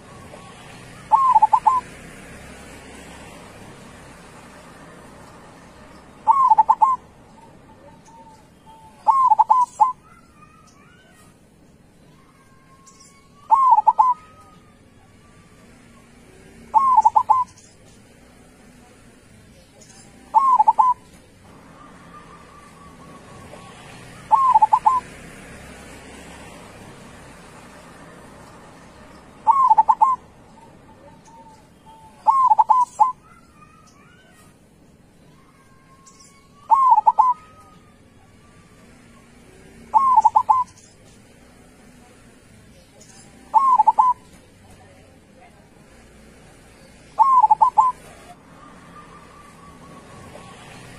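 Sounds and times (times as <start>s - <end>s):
dove cooing: 0.0s - 1.9s, 6.2s - 11.3s, 13.4s - 14.8s, 16.6s - 17.6s, 20.0s - 25.2s, 29.3s - 34.5s, 36.6s - 40.8s, 43.3s - 44.4s, 47.1s - 50.9s
faint bird chirps: 0.0s - 1.9s, 5.2s - 18.3s, 19.4s - 25.1s, 28.9s - 34.5s, 35.1s - 44.7s, 46.7s - 50.9s.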